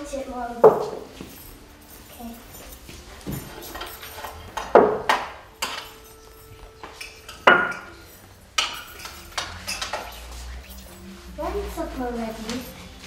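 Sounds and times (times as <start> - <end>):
metal pots and dishes clanking: 2.2 - 10.3.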